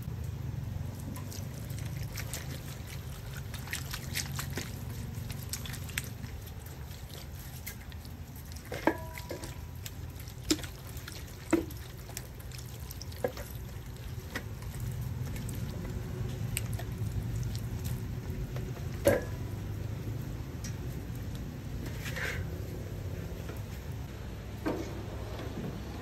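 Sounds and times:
drips and wet clicks: 0.0 - 21.5
hand rubbing and patting wet skin: 1.3 - 8.7.

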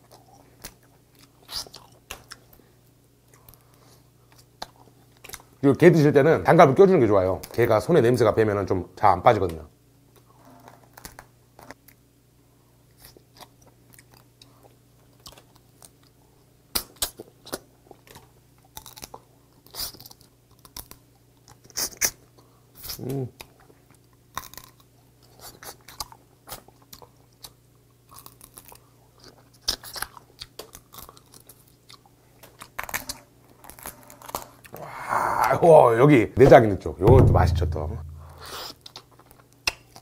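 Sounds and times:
chewing: 0.0 - 2.6, 3.3 - 5.6, 12.9 - 16.2, 16.8 - 34.8
crab shell cracking: 16.8 - 19.2.

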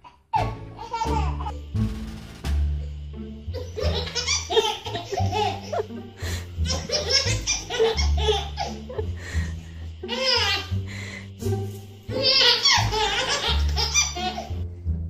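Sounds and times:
baby laughing: 0.0 - 1.6, 3.5 - 11.2, 12.1 - 14.6
background music with low bass: 0.4 - 15.0.

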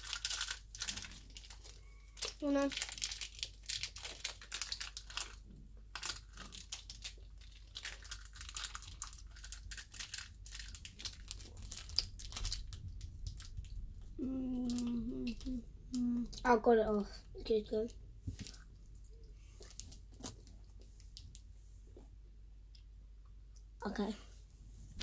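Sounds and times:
plastic packaging crinkling: 0.0 - 13.8.

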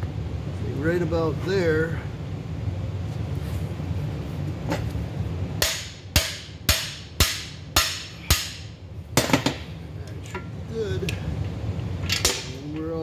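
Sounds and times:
hammer striking metal bar: 5.6 - 9.6.

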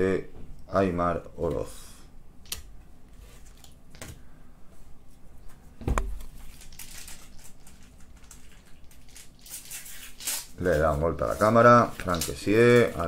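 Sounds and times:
thump: 5.8 - 6.1
wrappers crinkling: 6.3 - 13.0
paper packets being torn open: 6.4 - 13.0.

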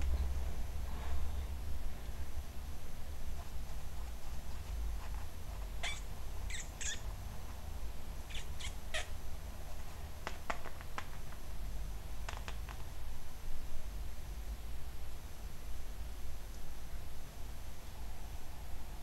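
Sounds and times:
kitten mewing: 5.8 - 7.0, 8.3 - 9.2.

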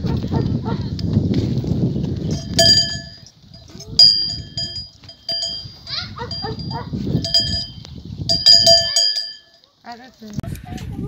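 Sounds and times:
small metal bell clanging: 2.3 - 9.7.

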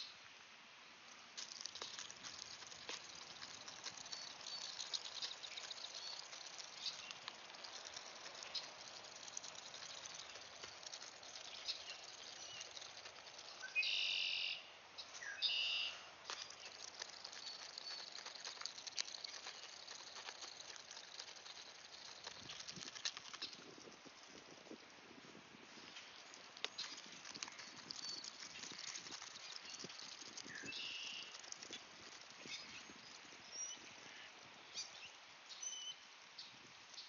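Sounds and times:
bill rummaging in seeds: 1.2 - 13.6, 16.2 - 24.9.

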